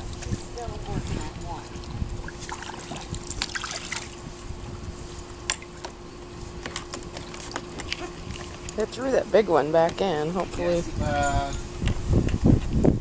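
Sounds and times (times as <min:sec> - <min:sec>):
dogs lapping water: 0:00.0 - 0:04.3, 0:06.7 - 0:10.8
small water splashes: 0:02.2 - 0:04.2.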